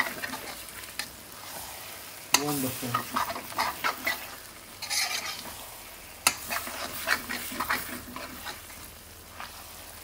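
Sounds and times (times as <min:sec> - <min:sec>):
oil sizzling: 0:00.0 - 0:10.0
metal spoon scraping a wok: 0:02.3 - 0:08.8.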